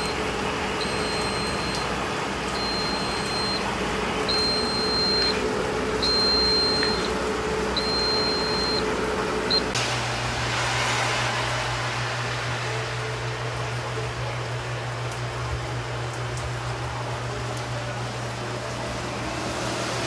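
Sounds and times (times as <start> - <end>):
machine hum: 0.0 - 20.0
long electronic beeps: 0.8 - 1.8, 2.6 - 3.7, 4.3 - 5.4, 6.0 - 7.1, 7.8 - 8.9.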